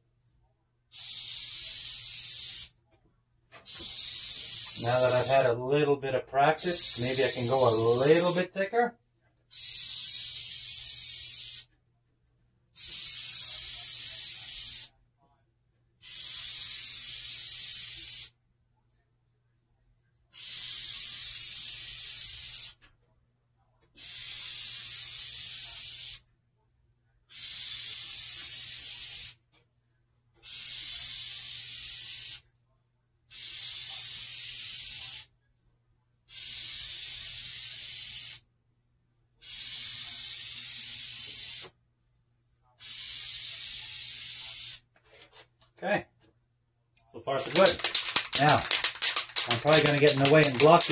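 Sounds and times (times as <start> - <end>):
aerosol spray can hissing: 0.9 - 2.8, 3.7 - 5.5, 6.6 - 8.5, 9.5 - 11.7, 12.8 - 14.9, 16.0 - 18.3, 20.4 - 22.8, 24.0 - 26.2, 27.3 - 29.4, 30.4 - 32.4, 33.3 - 35.3, 36.3 - 38.4, 39.4 - 41.8, 42.8 - 44.9, 47.3 - 50.9.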